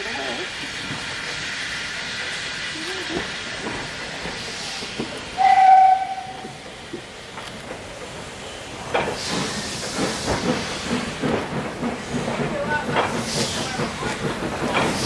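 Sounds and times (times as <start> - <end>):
steam hissing: 0.0 - 15.0
steam locomotive whistle: 5.4 - 6.6.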